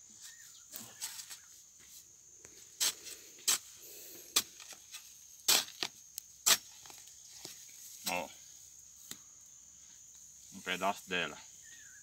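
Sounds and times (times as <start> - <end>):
metal tool striking hard soil: 4.3 - 8.3.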